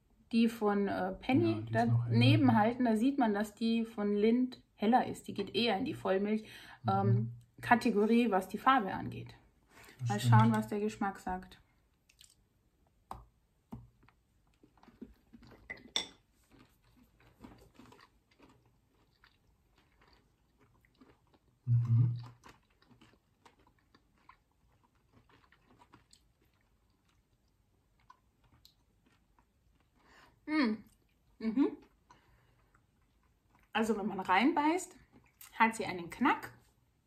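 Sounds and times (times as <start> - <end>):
low hum of voice: 1.3 - 2.4, 10.0 - 10.6, 21.7 - 22.2
chewing and crunching: 11.9 - 12.4, 13.9 - 33.8, 34.9 - 35.6.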